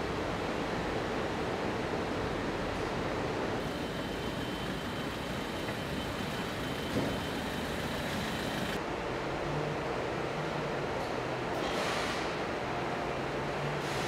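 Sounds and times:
dense factory noise: 0.1s - 14.0s
vehicle engine running: 3.6s - 8.8s.

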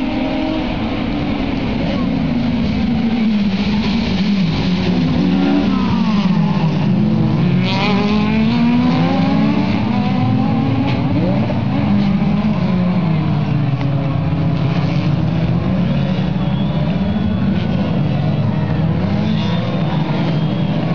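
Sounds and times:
racing car engines revving past: 0.0s - 20.9s.

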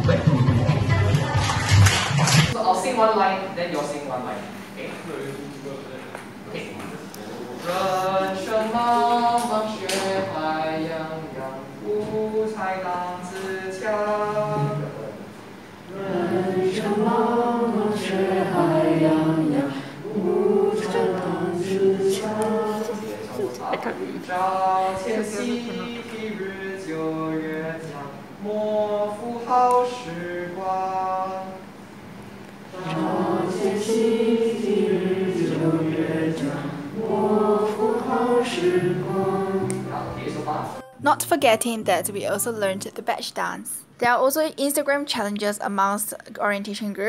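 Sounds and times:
group of voices singing: 7.5s - 15.2s, 15.9s - 31.7s, 32.7s - 41.0s
woman singing: 40.7s - 42.8s.

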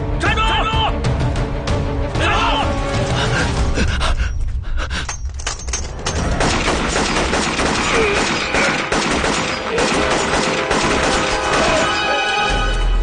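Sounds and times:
rapid gunfire: 6.3s - 11.9s.

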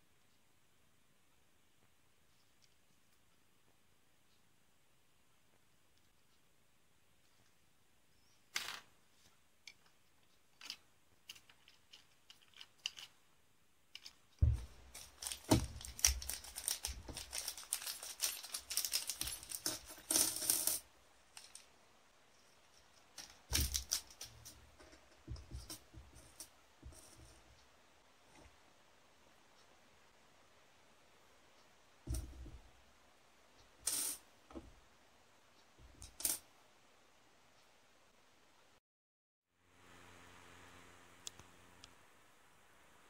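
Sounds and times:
plastic kit parts clicking: 9.6s - 13.2s, 13.9s - 20.1s
metal parts clicking on table: 10.6s - 13.2s, 13.9s - 20.8s
plastic bag crinkling: 14.0s - 20.2s, 23.2s - 24.3s.

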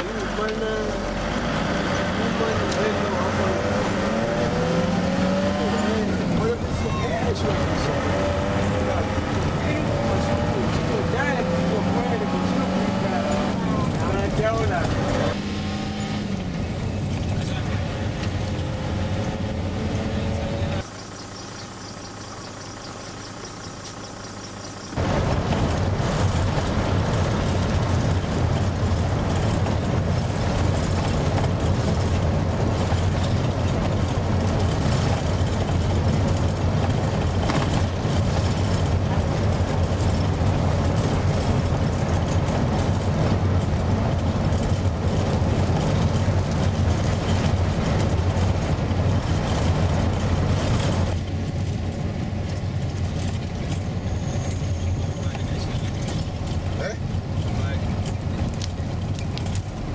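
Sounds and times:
vehicle engine and road noise: 0.0s - 59.9s.

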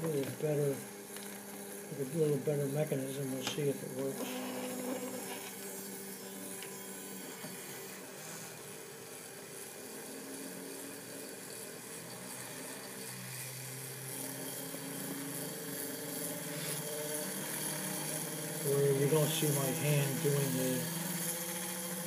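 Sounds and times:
gyroscope rotor whirring: 0.0s - 22.0s.

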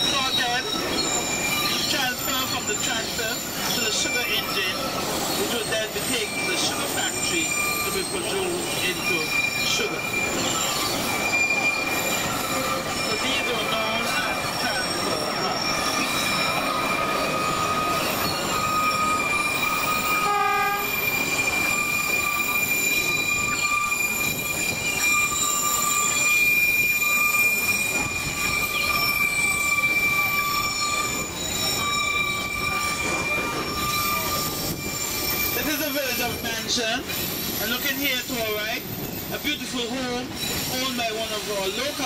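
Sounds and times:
train rumbling: 0.0s - 42.0s
train wheels squealing on rails: 0.0s - 42.0s
train horn toot: 20.2s - 21.0s.

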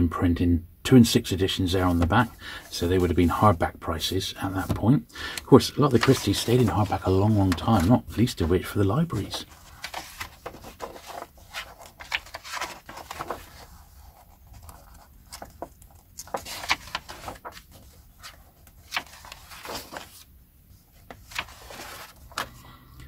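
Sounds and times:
paper rustling: 1.8s - 3.6s, 4.4s - 22.6s
paper pages turning: 4.4s - 22.6s.

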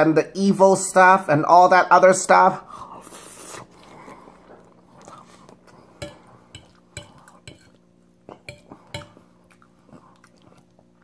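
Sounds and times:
low steady hum: 0.0s - 11.0s
fork scraping a plate: 6.0s - 7.8s.

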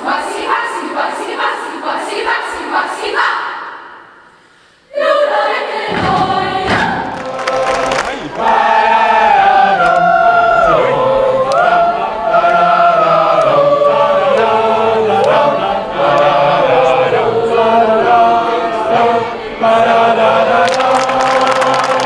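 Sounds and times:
boys' choir singing: 0.0s - 4.0s, 4.9s - 22.0s.

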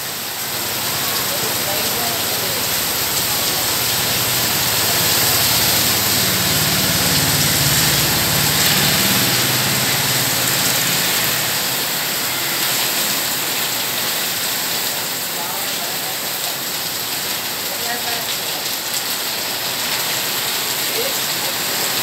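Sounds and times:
heavy rain on wet road: 0.0s - 22.0s
vehicle engine running low: 2.3s - 12.3s.

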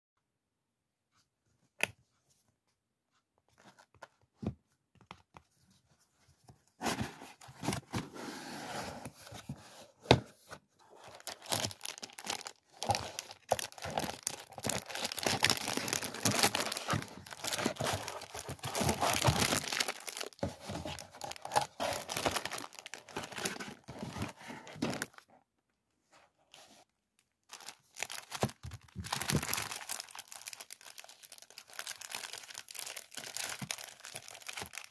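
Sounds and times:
hands rummaging in cardboard box: 6.8s - 25.2s
cellophane crinkling and tearing: 10.9s - 25.2s, 27.2s - 34.9s
plastic sleeve crinkling: 10.9s - 25.2s, 27.4s - 34.9s.

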